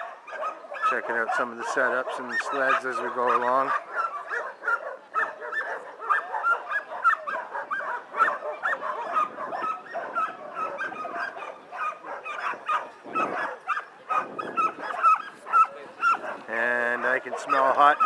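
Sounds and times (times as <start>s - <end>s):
dogs barking and yipping: 0.0s - 18.0s.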